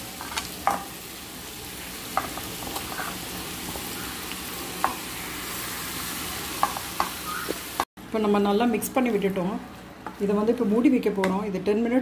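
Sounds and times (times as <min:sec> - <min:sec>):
chicken sizzling in oil: 0:00.0 - 0:07.9.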